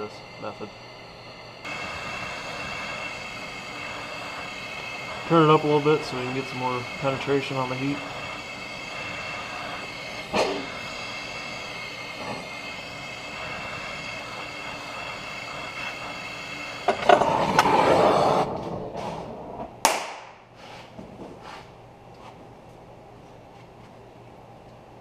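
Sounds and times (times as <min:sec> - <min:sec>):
torch flame hissing: 0:00.0 - 0:19.7
sharp snap: 0:19.8 - 0:20.4.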